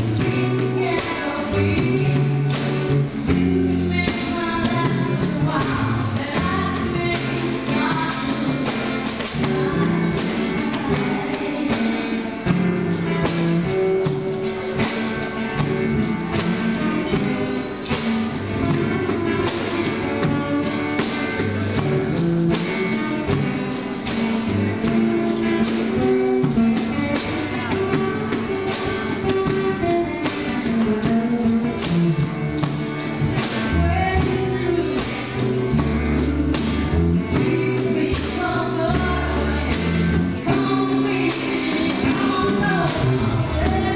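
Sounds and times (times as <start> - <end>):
acoustic guitars strummed: 0.0 - 43.9
hand percussion beat: 0.0 - 43.9
voices singing: 0.1 - 12.5, 33.7 - 43.9.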